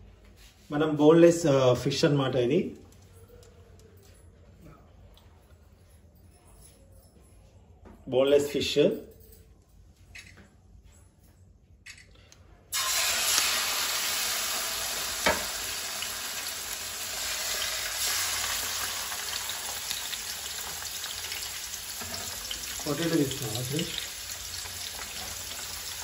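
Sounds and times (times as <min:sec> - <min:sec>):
fish fillets sizzling in hot oil: 0:12.8 - 0:26.0.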